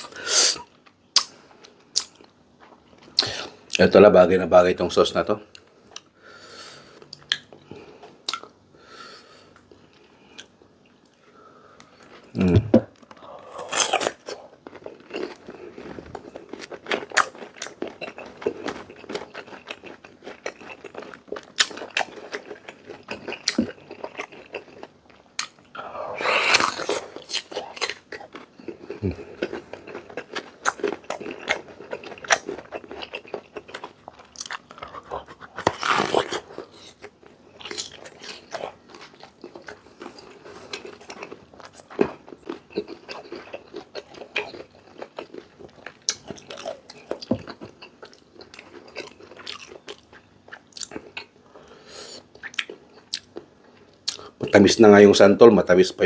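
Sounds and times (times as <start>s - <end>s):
crunchy chewing of raw mango: 13.0s - 54.4s.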